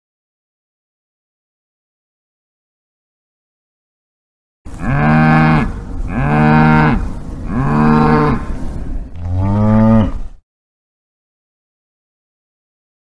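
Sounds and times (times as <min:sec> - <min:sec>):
cow mooing: 0:04.7 - 0:08.5, 0:09.2 - 0:10.3.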